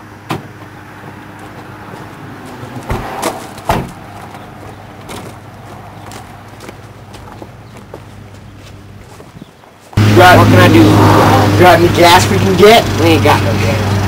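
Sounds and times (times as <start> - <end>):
van doors shutting: 0.0 - 6.2.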